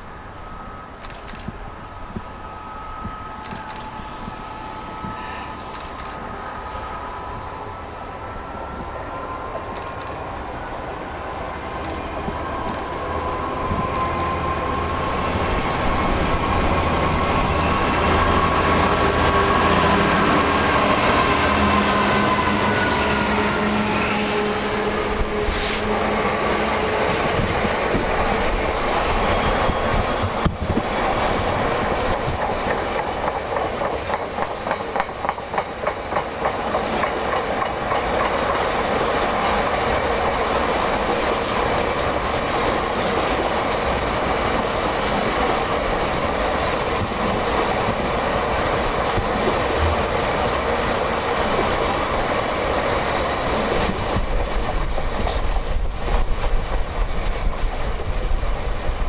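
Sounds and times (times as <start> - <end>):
diesel locomotive engine passing: 0.0 - 59.0
train wheels clicking over rail joints: 11.8 - 14.5, 15.4 - 16.2, 27.0 - 50.7.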